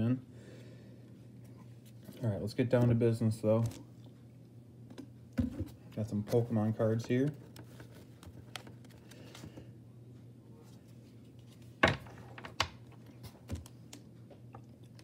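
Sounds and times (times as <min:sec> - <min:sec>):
low steady hum: 0:00.0 - 0:15.0
cards and plastic packaging handled: 0:01.8 - 0:03.9, 0:05.4 - 0:09.7.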